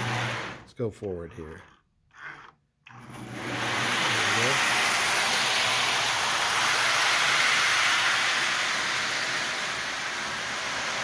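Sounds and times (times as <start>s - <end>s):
toy train rolling on track: 4.1s - 11.0s.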